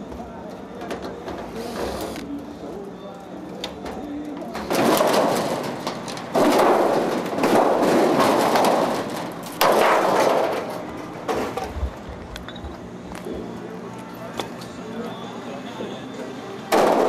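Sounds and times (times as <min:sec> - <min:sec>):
sheet metal rattling and scraping: 0:03.8 - 0:11.9.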